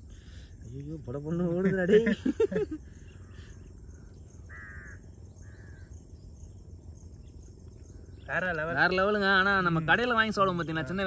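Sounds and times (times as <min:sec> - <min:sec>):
low steady background noise: 0:00.0 - 0:11.0
crow cawing: 0:03.2 - 0:06.0.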